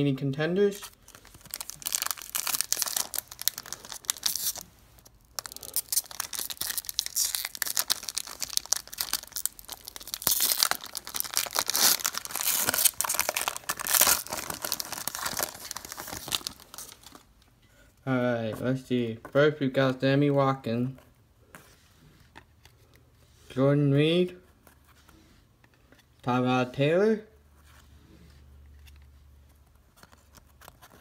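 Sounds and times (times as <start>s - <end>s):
foil wrapper crinkling and tearing: 1.0s - 17.3s.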